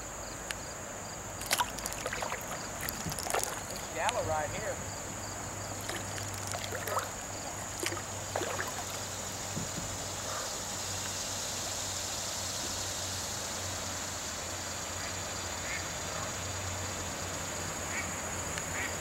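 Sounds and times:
water rushing over rocks: 1.4 - 4.8, 5.7 - 9.3.

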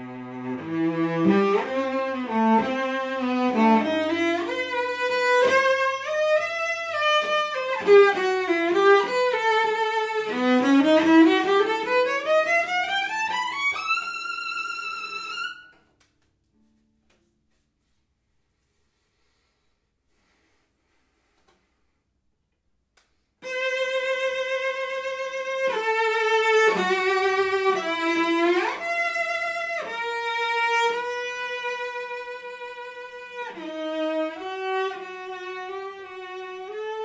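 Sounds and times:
bowed cello: 0.0 - 15.8, 23.4 - 37.0.

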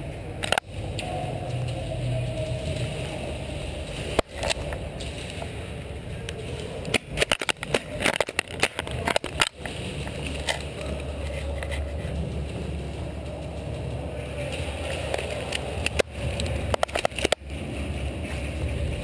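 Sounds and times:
low hum: 0.0 - 19.0
sharp clicks and knocks: 0.4 - 1.8, 6.2 - 11.9, 15.0 - 17.5.

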